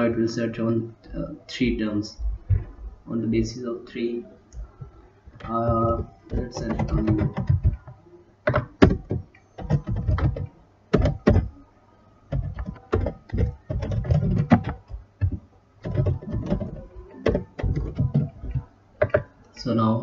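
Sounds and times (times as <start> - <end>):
computer keyboard typing: 5.4 - 11.6, 12.3 - 19.3.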